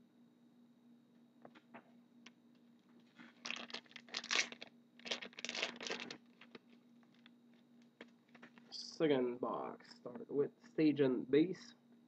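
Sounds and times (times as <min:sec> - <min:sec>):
plastic wrapper crinkling and tearing: 0:03.2 - 0:07.2.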